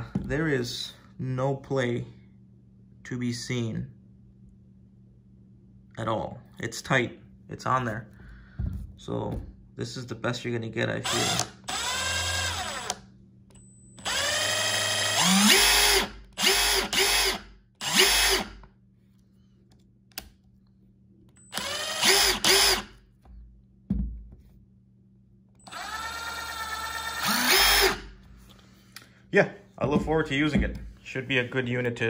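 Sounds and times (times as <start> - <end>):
impact driver motor whine: 11.1 - 13.0, 14.0 - 18.6, 21.5 - 22.9, 25.6 - 28.2.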